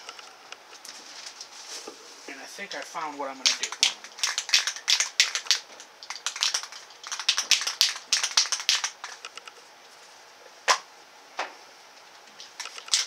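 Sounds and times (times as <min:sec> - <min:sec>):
spray can ball rattling: 0:03.4 - 0:09.4, 0:12.4 - 0:13.0.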